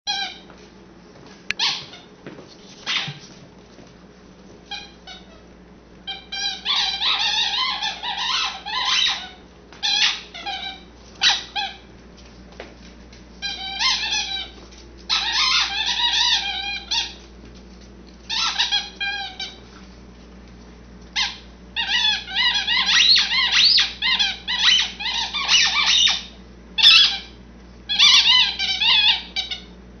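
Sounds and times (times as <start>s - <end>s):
squeaky toy squeaking: 6.1s - 11.8s, 13.4s - 17.2s, 18.3s - 19.6s, 21.2s - 27.3s, 27.9s - 29.7s
puppy chewing toy: 13.4s - 19.6s.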